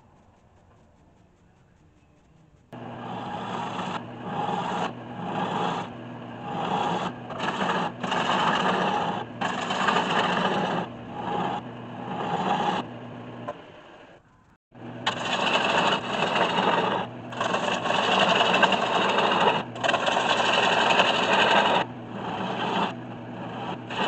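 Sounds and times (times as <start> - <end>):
gouge rasping on spinning wood: 2.8 - 13.0, 15.0 - 24.0
lathe motor hum: 2.8 - 14.2, 14.8 - 24.0.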